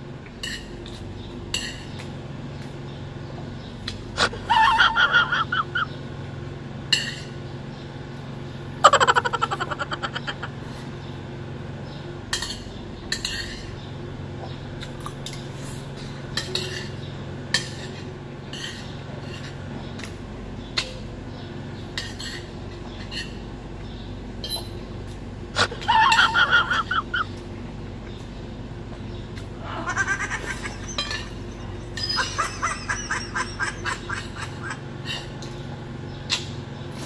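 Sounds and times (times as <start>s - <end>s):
low steady hum: 0.0s - 37.0s
cutlery clinking on a plate: 16.4s - 17.0s.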